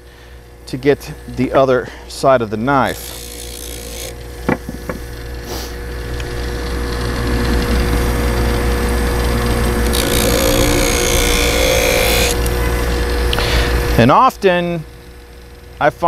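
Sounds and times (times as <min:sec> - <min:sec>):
bench buffer motor humming: 0:00.0 - 0:16.0
knife edge rubbing on buffing wheel: 0:02.6 - 0:13.1.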